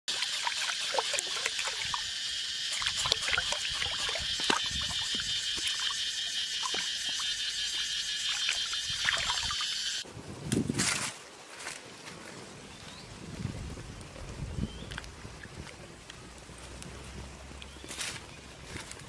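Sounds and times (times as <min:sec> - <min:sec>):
meat rinsed by hand in water: 0:00.1 - 0:10.0
stream water running: 0:00.1 - 0:10.1.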